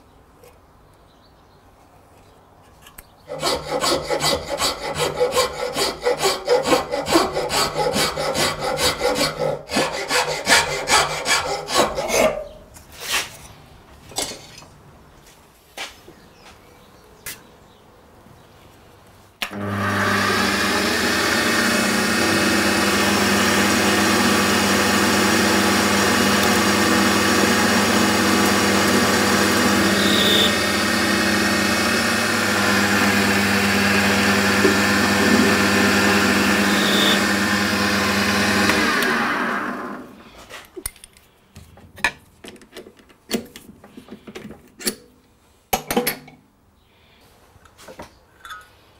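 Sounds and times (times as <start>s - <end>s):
metal lathe motor and gear whine: 19.6s - 39.2s.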